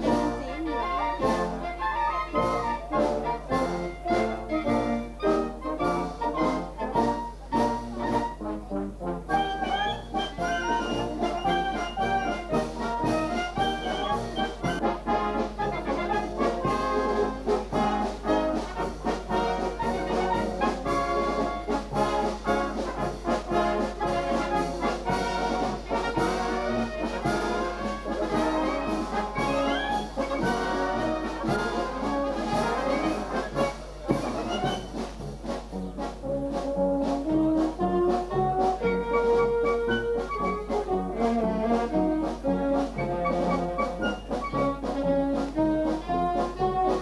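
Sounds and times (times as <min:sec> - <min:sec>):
wind band playing: 0:00.0 - 0:47.0.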